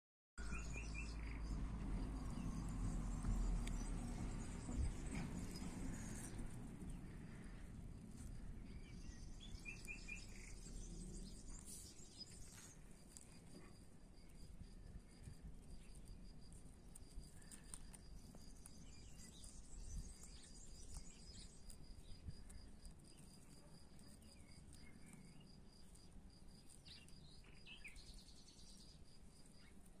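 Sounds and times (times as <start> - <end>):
bird chirps: 0.4 - 7.4, 8.6 - 13.7, 26.8 - 29.0
insect chirping: 0.4 - 30.0.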